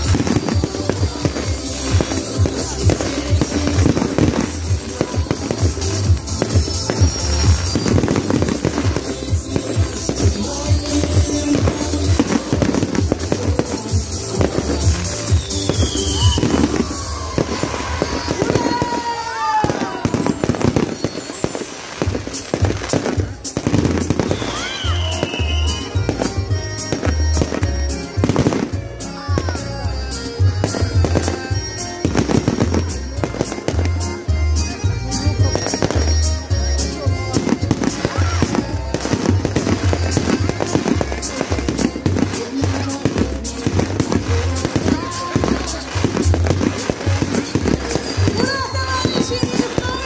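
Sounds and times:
music with pulsing bass beat: 0.0s - 18.5s, 22.0s - 50.0s
fireworks bangs and crackles: 0.0s - 50.0s.

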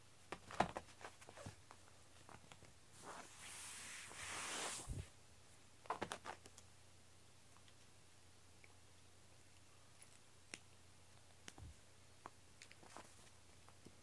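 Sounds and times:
cord dragging over foam mat: 3.0s - 5.1s.

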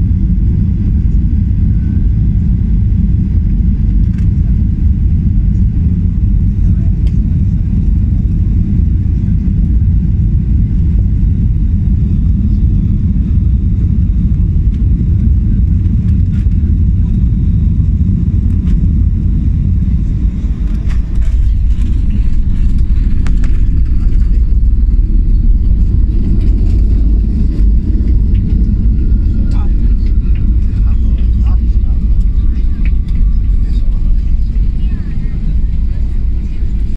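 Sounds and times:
jet engine and airflow rumble: 0.0s - 36.9s.

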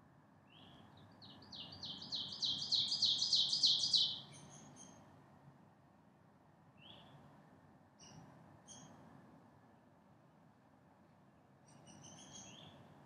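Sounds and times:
songbird singing high notes: 1.6s - 4.3s.

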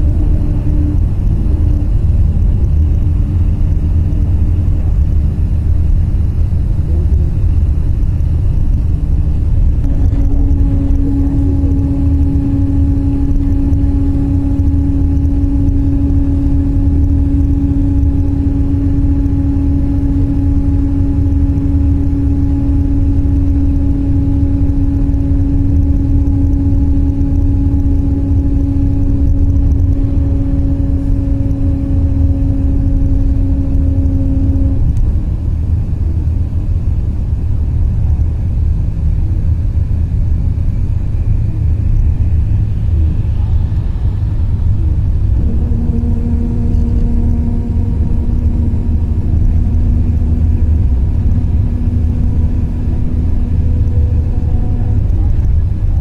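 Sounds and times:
road and engine rumble: 0.0s - 56.0s
steady hum: 0.0s - 56.0s.

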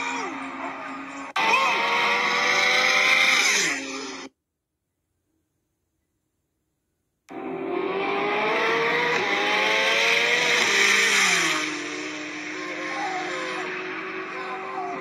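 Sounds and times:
car engines at full throttle: 0.3s - 4.3s, 7.3s - 15.0s.

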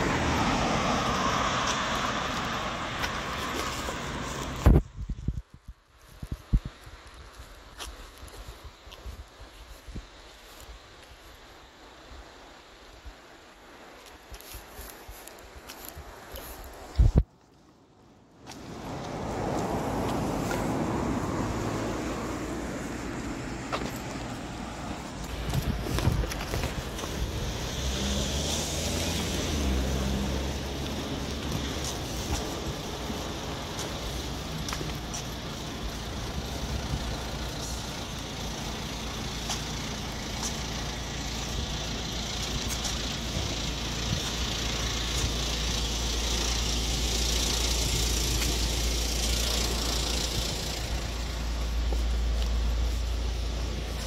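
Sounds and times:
cars and trucks passing: 0.0s - 5.0s, 17.9s - 54.0s
hissing tyre noise: 0.0s - 5.1s, 18.4s - 54.0s.

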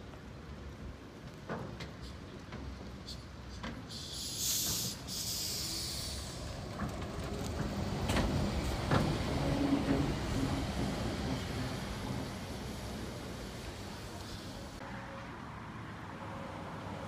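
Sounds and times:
trolleybus low rumble: 0.0s - 17.0s
short hiss: 3.0s - 6.5s.

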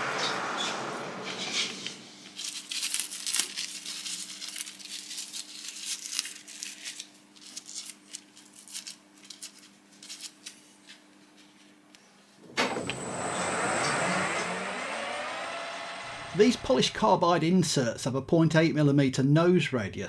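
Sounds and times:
plastic chips crinkling and rustling: 2.2s - 11.0s.

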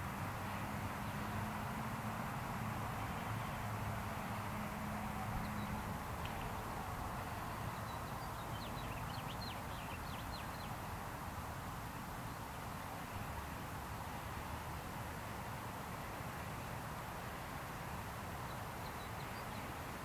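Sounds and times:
distant traffic: 0.0s - 20.0s
wind: 0.0s - 20.0s
bird chirping: 7.8s - 10.8s.

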